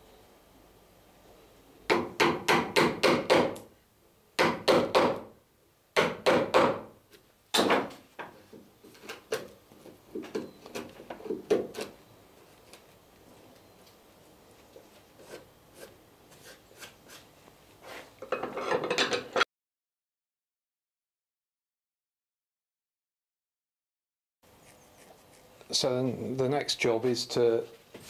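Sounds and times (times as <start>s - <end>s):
hammer striking chisel into wood: 1.9s - 3.7s, 4.4s - 5.3s, 6.0s - 6.9s, 7.6s - 7.9s.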